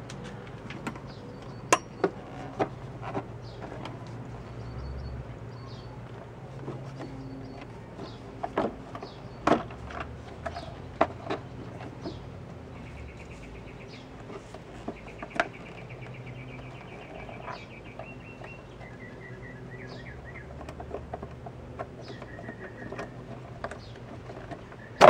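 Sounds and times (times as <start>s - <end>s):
songbirds trilling and chirping: 0.0s - 25.0s.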